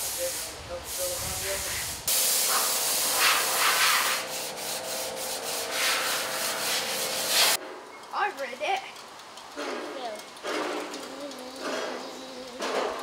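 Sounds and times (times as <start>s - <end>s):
sanding car body panel: 2.5s - 7.6s.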